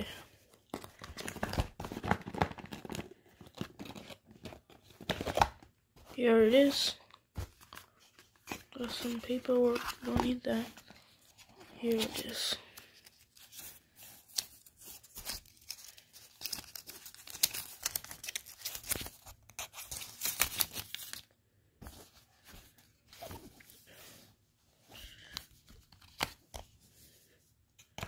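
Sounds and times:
plastic wrapping crinkling and tearing: 11.8s - 21.3s.

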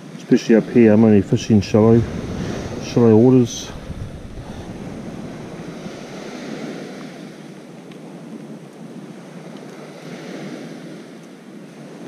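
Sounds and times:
surf on rocky shoreline: 0.2s - 8.1s
wind on microphone: 0.4s - 7.6s.

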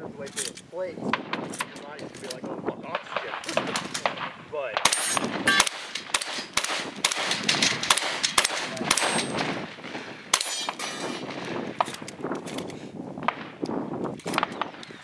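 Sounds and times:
shotgun shots: 2.9s - 12.1s, 14.2s - 14.9s.

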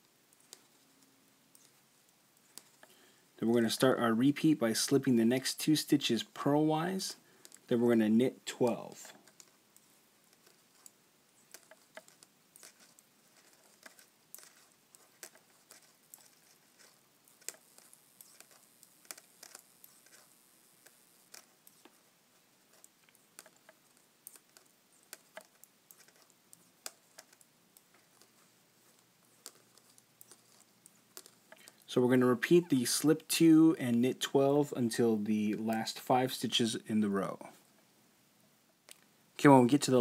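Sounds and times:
metal knitting needles clicking: 8.6s - 22.0s, 22.6s - 31.9s.

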